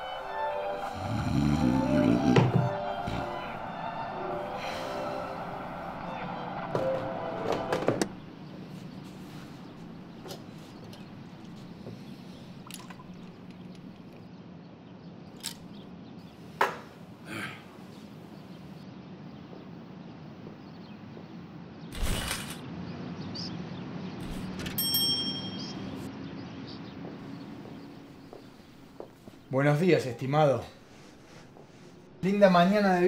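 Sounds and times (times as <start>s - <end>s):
ringing ding: 24.8s - 26.0s.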